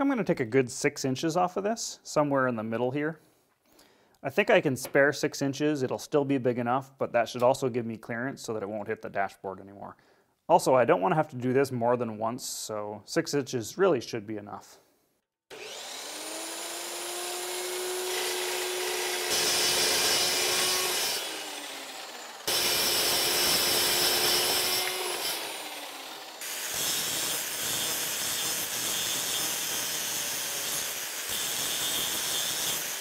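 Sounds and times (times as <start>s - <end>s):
angle grinder grinding metal: 15.5s - 33.0s
chop saw cutting steel: 15.5s - 33.0s.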